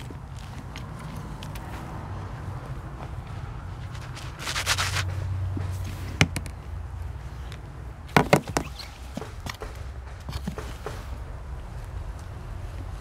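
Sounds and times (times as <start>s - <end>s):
hands digging in soil: 3.6s - 6.2s.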